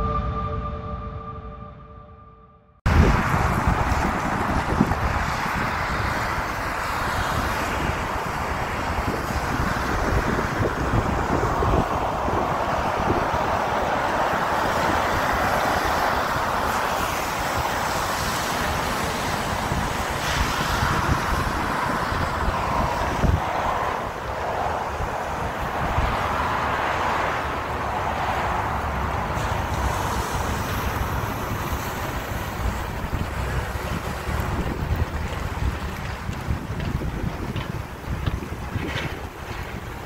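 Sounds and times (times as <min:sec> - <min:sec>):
wind buffeting microphone: 0:02.9 - 0:40.0
tyres hissing through water: 0:11.2 - 0:27.3, 0:29.2 - 0:38.2.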